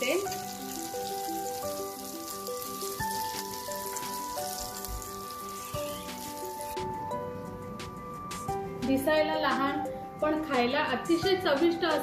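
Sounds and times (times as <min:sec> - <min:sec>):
fish sizzling in hot oil: 0:00.0 - 0:07.1
background music with held notes: 0:00.0 - 0:12.0.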